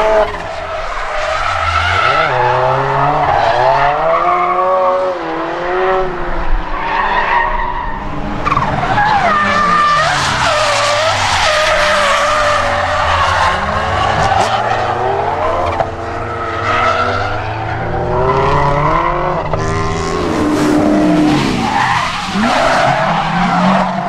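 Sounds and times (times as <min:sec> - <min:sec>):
car engine revving: 0:08.0 - 0:24.0.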